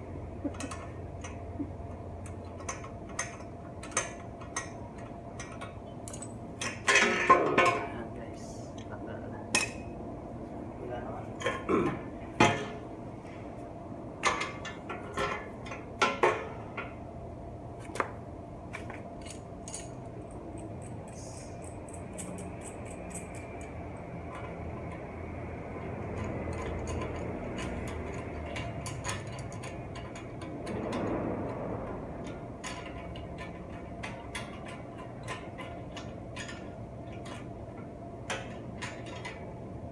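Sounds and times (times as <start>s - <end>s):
metal clanks on concrete floor: 5.4s - 7.9s.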